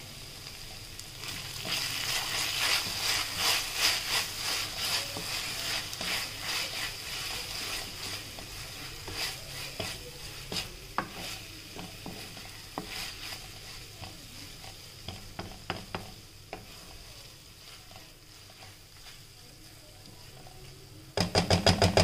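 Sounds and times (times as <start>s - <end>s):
vegetables sizzling in oil: 0.0s - 22.0s
spatula scraping a wok: 1.0s - 20.8s
spatula tapping a pan: 7.7s - 17.0s, 21.2s - 22.0s.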